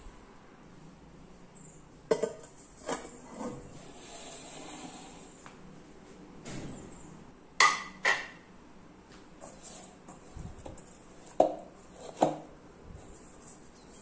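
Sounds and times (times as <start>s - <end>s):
ceramic plate clinking on steel bowl: 2.1s - 3.0s.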